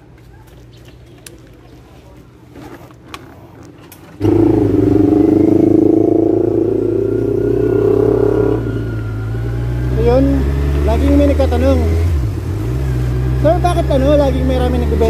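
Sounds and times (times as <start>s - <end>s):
low hum: 4.2s - 10.7s
motorcycle engine running loudly: 4.2s - 15.0s.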